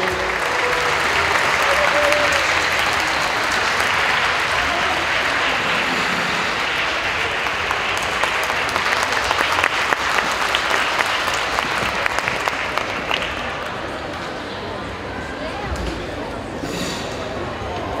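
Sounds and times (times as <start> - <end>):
audience applauding: 0.0 - 14.2.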